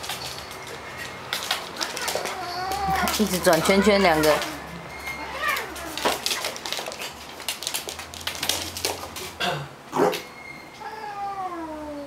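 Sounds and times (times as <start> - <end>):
paws and claws scrabbling on wood: 0.0 - 9.4.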